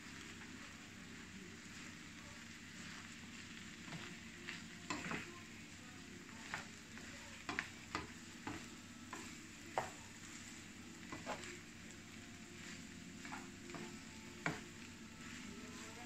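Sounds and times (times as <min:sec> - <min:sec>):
faint sizzle: 0:00.0 - 0:16.0
spatula scraping frying pan: 0:02.8 - 0:05.3, 0:06.4 - 0:11.7, 0:12.4 - 0:16.0.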